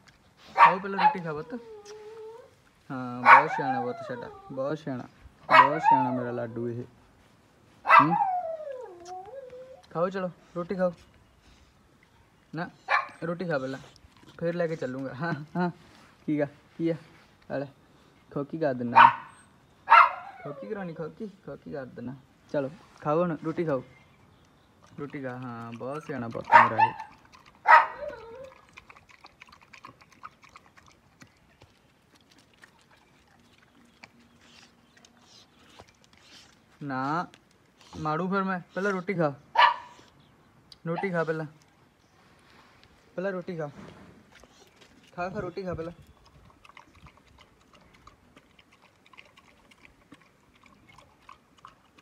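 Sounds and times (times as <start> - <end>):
dog chewing from bowl: 24.7 - 39.1, 44.3 - 52.0.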